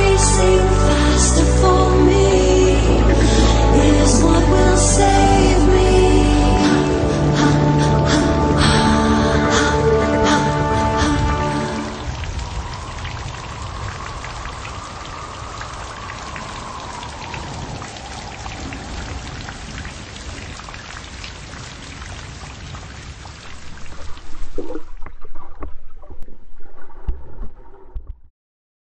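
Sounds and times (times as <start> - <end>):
rain patter: 0.0 - 25.9
muffled underwater sloshing: 23.4 - 28.1.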